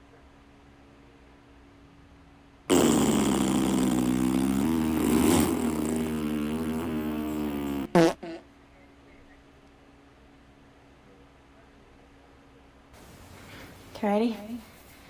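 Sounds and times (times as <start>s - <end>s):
fart: 2.7s - 8.4s.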